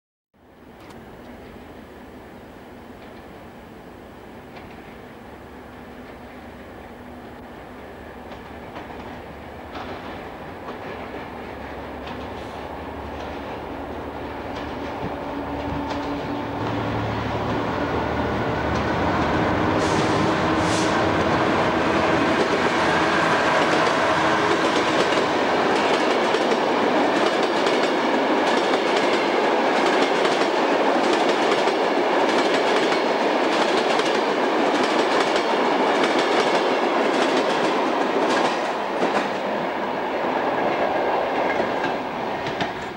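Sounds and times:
diesel locomotive engine hum: 0.4s - 42.9s
train rolling rumble: 0.4s - 42.9s
wheels clicking over rail joints: 8.2s - 16.8s.

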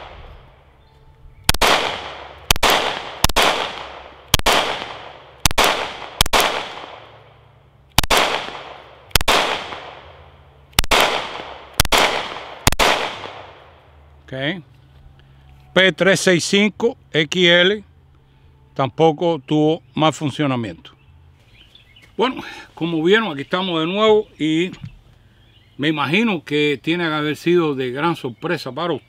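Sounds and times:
pistol shots with echo: 1.5s - 7.3s, 8.0s - 13.8s.

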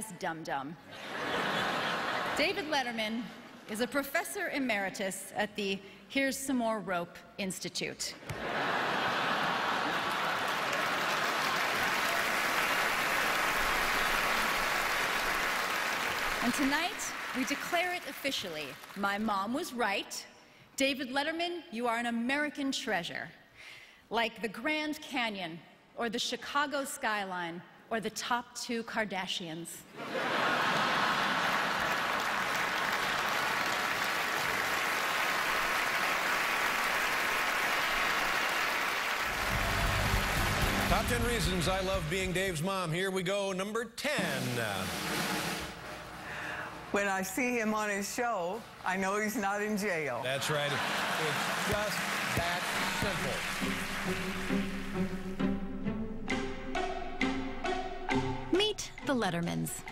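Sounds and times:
large audience applauding: 8.3s - 19.2s, 30.3s - 42.6s, 50.3s - 55.4s.

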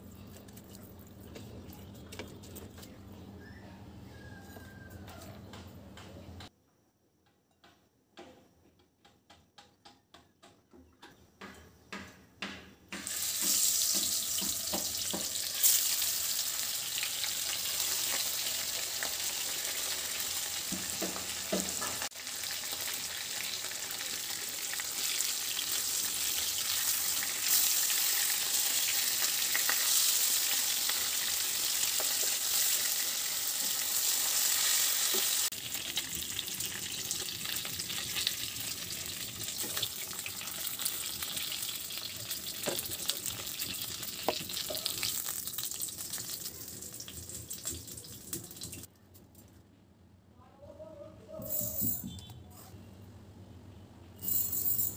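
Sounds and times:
fish sizzling in oil: 13.0s - 48.9s.

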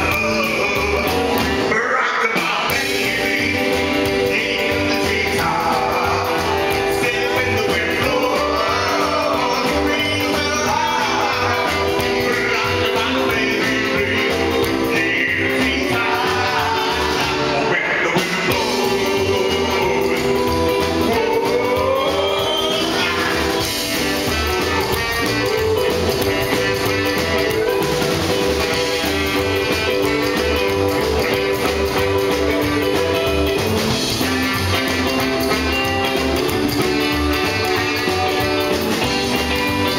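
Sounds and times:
drums: 0.0s - 39.9s
electric guitar: 0.0s - 39.9s
man singing lead: 0.0s - 39.9s
upright bass: 0.0s - 39.9s
saxophone: 2.7s - 39.9s.

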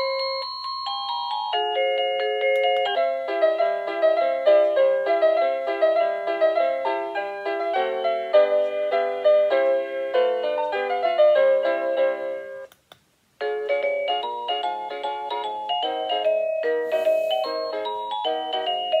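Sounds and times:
doorbell chime melody: 0.0s - 3.6s, 13.7s - 19.0s.

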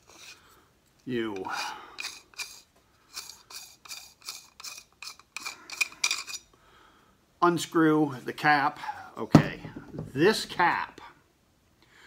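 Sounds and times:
metal threads scraping: 0.0s - 6.5s.

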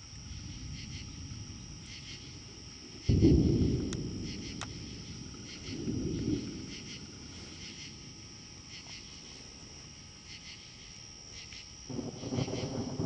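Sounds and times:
thunder rumbling: 0.0s - 8.8s, 11.9s - 13.0s
crickets chirping: 0.0s - 13.0s.

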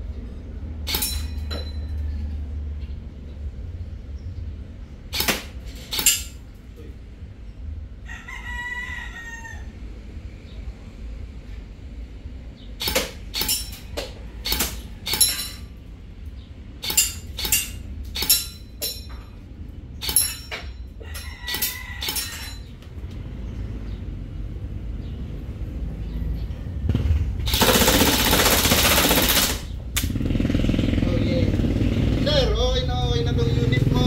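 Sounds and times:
airsoft rifle shots cracking: 5.1s - 6.4s, 12.8s - 15.6s, 27.5s - 30.2s
rooster crowing: 8.0s - 10.0s, 21.0s - 22.8s.

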